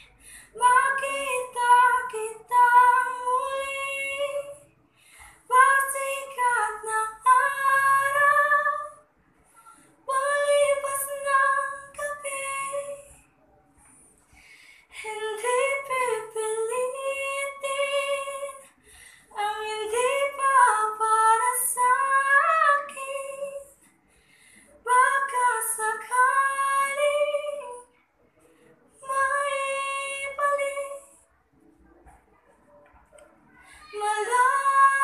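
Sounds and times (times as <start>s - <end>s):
short breaths: 0.0s - 0.6s, 4.9s - 5.5s, 9.4s - 10.0s, 13.8s - 15.0s, 18.6s - 19.4s, 23.8s - 24.8s, 33.5s - 34.0s
girl singing unaccompanied: 0.6s - 4.7s, 5.5s - 9.1s, 10.1s - 13.2s, 15.0s - 18.6s, 33.6s - 35.0s.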